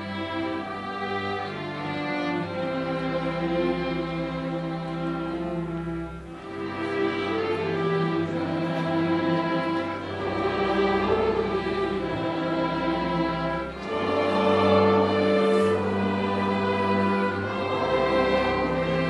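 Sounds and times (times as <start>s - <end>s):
orchestra playing a carol: 0.0s - 19.0s.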